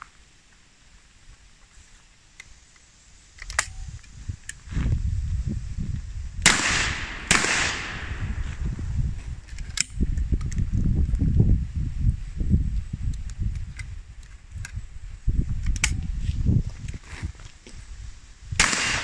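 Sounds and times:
metallic click of gun action: 3.4s - 4.6s, 9.4s - 10.7s, 15.6s - 16.0s
shotgun firing with echo: 6.4s - 8.4s, 18.6s - 19.0s.

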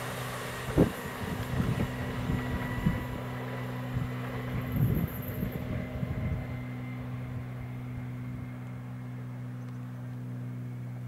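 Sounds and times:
wheels rolling on rails: 0.0s - 9.0s
electric train humming: 0.0s - 11.0s
wind buffeting microphone: 0.5s - 8.2s.

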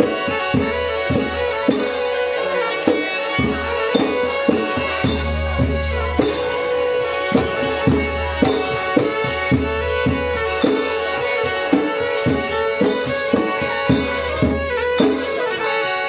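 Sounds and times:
hand drums beating: 0.0s - 15.5s
droning melody: 3.5s - 15.9s.

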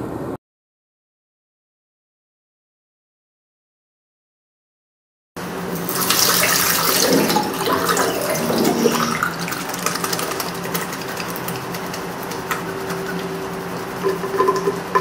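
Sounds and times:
water running into a sink: 5.5s - 15.0s
hands rubbing under water: 5.7s - 14.8s.

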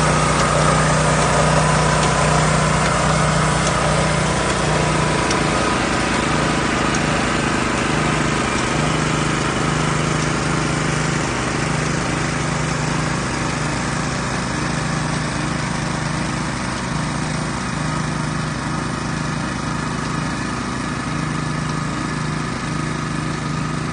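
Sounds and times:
small petrol engine running: 0.0s - 23.9s.

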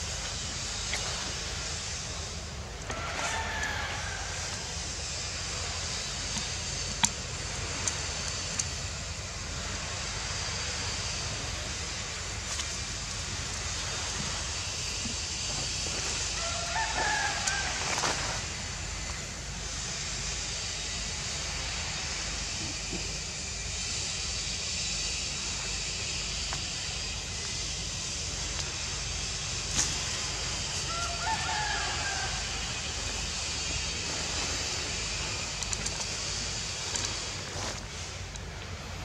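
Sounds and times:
outdoor hiss with low rumble: 0.0s - 39.0s.

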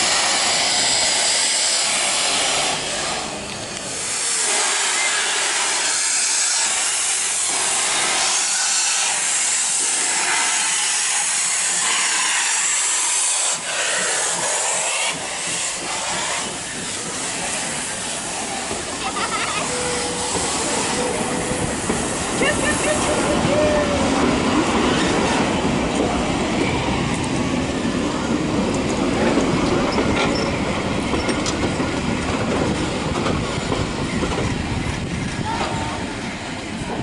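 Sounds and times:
steam locomotive hissing: 0.0s - 37.0s.

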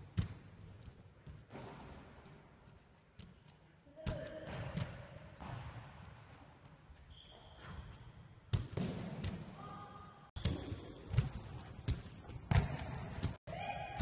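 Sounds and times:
ball bouncing on hall floor: 0.1s - 14.0s
shoe squeaks: 7.1s - 8.2s.

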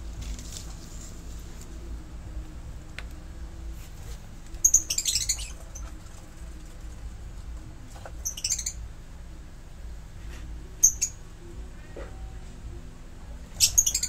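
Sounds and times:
lovebirds shrill chirps: 4.6s - 5.9s, 8.2s - 8.8s, 10.8s - 11.2s, 13.6s - 14.0s.

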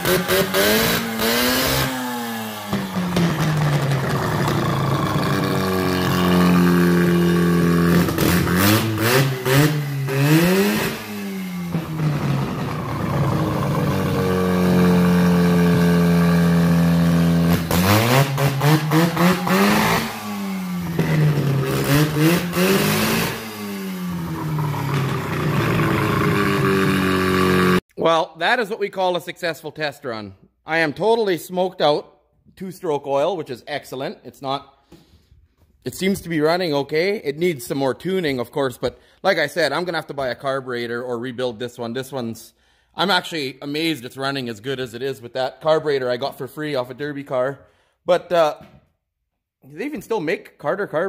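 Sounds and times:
engine revving and running: 0.0s - 27.8s.

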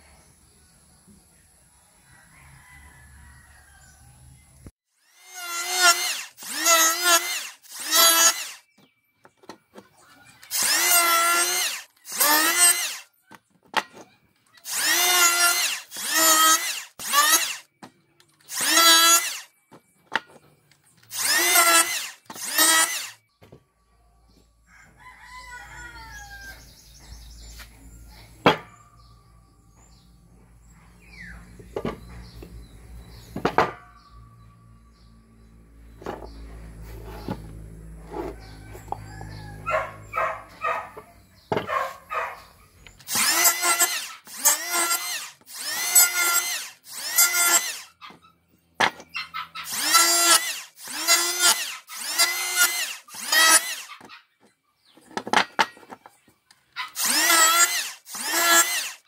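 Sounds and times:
electric planer whining: 5.0s - 8.6s, 10.4s - 13.0s, 14.7s - 17.6s, 18.5s - 19.5s, 21.1s - 23.2s, 35.4s - 41.0s, 43.0s - 47.9s, 49.6s - 54.1s, 56.8s - 59.0s.

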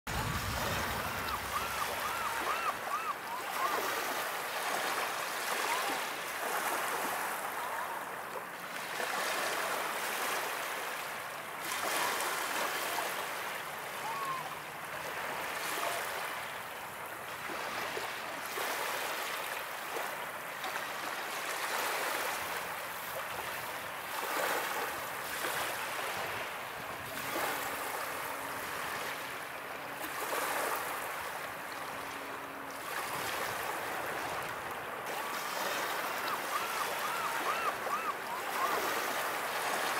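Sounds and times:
waves washing over pebbles: 0.1s - 7.6s
bird calls: 0.6s - 4.3s, 35.7s - 39.4s.

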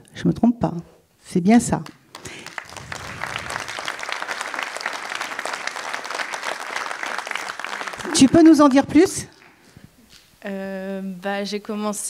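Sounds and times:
audience applauding: 2.1s - 9.6s.

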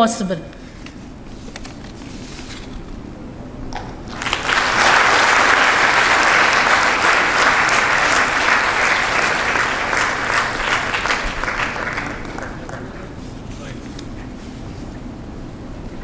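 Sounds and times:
audience applauding: 4.0s - 13.1s.

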